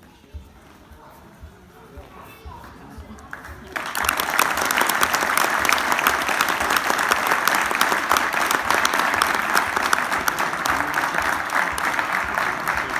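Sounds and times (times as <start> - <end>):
audience applauding: 3.3 - 12.9.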